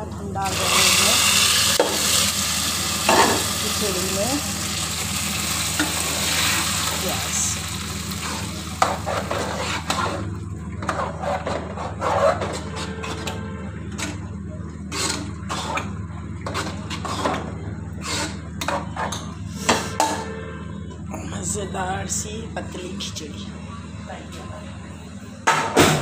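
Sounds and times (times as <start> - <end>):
steady low hum: 0.0 - 26.0
onions sizzling in oil: 0.4 - 10.2
utensils clinking against pans: 3.1 - 4.3.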